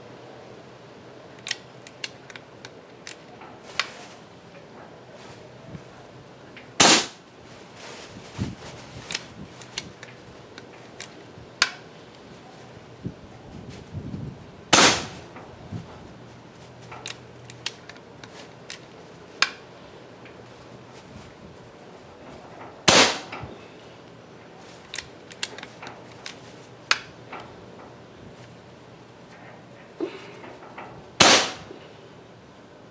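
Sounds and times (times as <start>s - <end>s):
air rifle shot: 6.8s - 7.2s, 14.7s - 15.2s, 22.9s - 23.4s, 31.2s - 31.8s.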